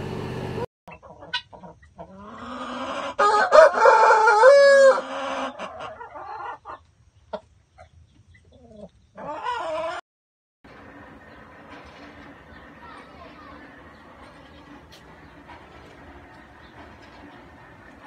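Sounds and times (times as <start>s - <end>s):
chicken clucking: 0.9s - 3.8s, 4.7s - 10.0s
rooster crowing: 3.2s - 5.7s.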